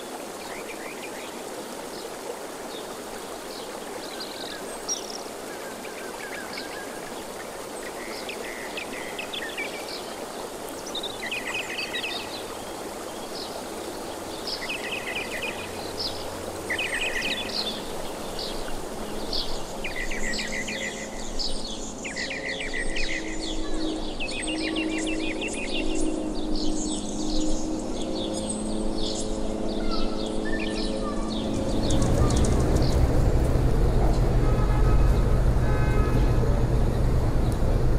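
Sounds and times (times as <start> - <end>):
small birds chirping: 29.0 - 37.8
steady rushing noise: 31.3 - 37.9.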